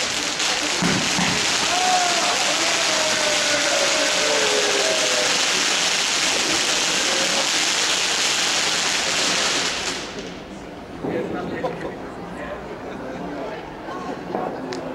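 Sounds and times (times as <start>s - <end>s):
firework fountain hissing sparks: 0.0s - 10.7s.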